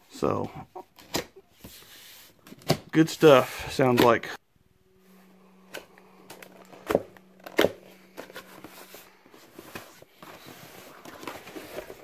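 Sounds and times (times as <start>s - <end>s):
faint steady hum: 0.0s - 12.0s
cardboard flaps rustling and scraping: 6.6s - 12.0s.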